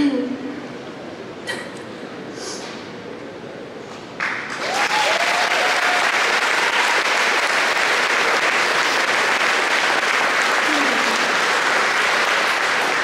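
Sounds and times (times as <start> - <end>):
audience applause: 4.2 - 13.0.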